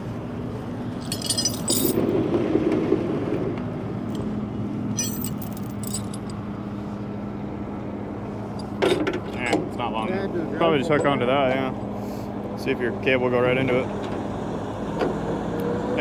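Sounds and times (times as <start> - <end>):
chain and hooks clinking: 1.0 - 2.1, 5.0 - 6.4.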